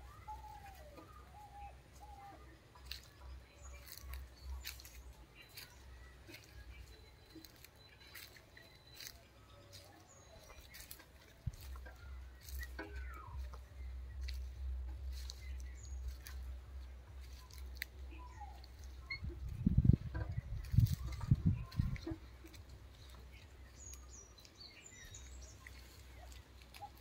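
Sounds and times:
footsteps on dry leaves: 0:00.0 - 0:27.0
low rumble: 0:11.5 - 0:23.8.

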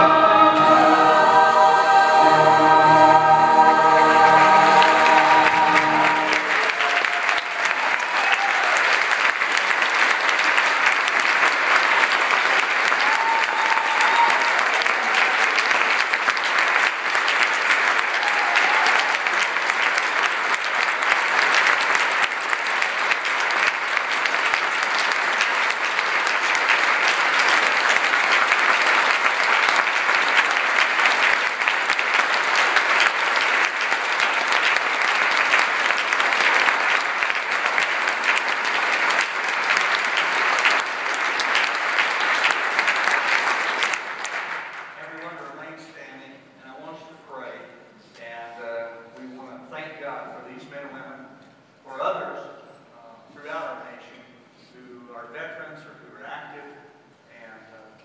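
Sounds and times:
congregation applauding: 0:00.0 - 0:45.4.

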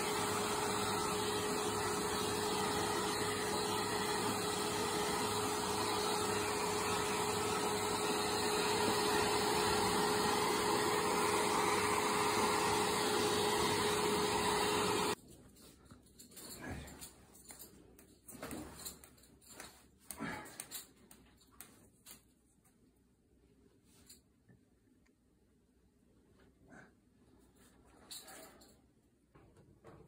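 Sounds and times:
hair dryer blowing: 0:00.0 - 0:15.2.

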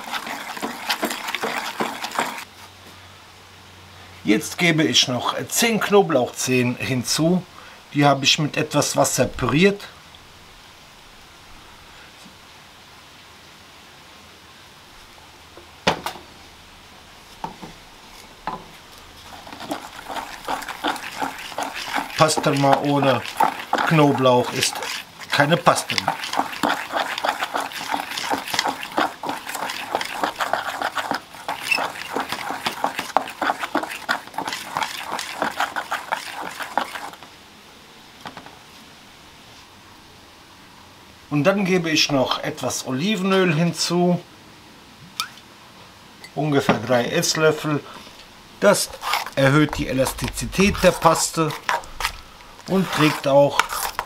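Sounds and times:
wire whisk beating paste in bowl: 0:00.0 - 0:02.5, 0:19.3 - 0:37.2, 0:48.7 - 0:54.0
quiet steady hiss: 0:02.5 - 0:27.5, 0:36.6 - 0:54.0.

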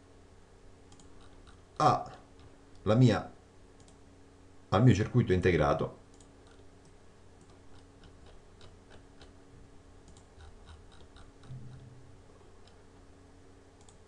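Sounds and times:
steady low hum: 0:00.0 - 0:14.0
computer mouse clicks: 0:00.9 - 0:01.6, 0:03.8 - 0:04.0, 0:06.1 - 0:09.4, 0:10.0 - 0:11.9, 0:13.8 - 0:14.0.

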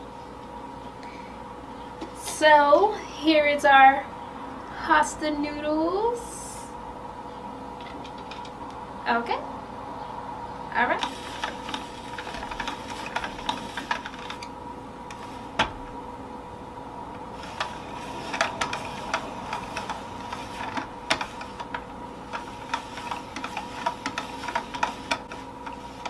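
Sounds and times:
faint steady hum: 0:00.0 - 0:26.0
spiralizer crank clicking: 0:17.4 - 0:26.0.

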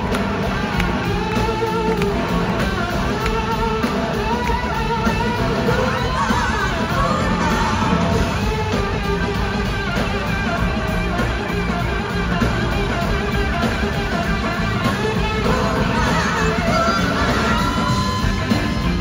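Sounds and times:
blues-rock band playing: 0:00.0 - 0:19.0
electric guitar lead: 0:00.0 - 0:19.0.

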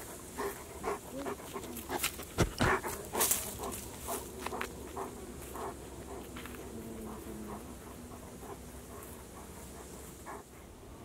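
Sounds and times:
sharp knocks or crunches: 0:02.3 - 0:02.8.

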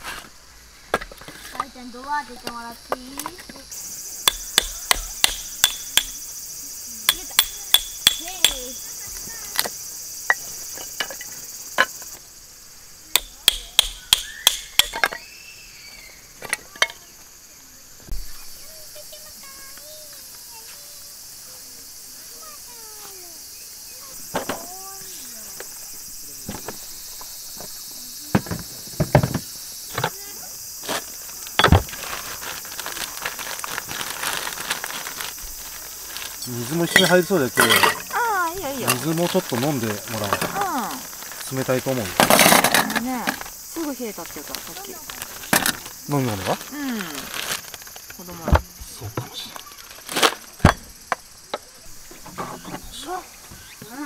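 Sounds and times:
insects chirping: 0:00.0 - 0:54.0
hatchet splitting wood: 0:04.2 - 0:06.2, 0:07.1 - 0:08.6, 0:13.2 - 0:15.1
plastic bag of ice crinkling: 0:31.2 - 0:37.0, 0:39.0 - 0:42.8, 0:44.2 - 0:48.1.

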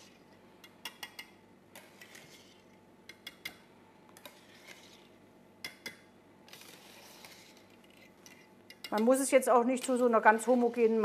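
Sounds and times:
whisk swishing through cream: 0:06.6 - 0:08.1, 0:10.1 - 0:11.0.

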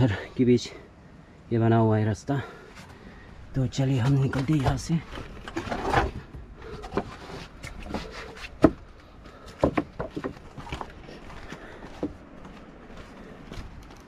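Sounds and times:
footsteps on a trail: 0:06.2 - 0:14.0.

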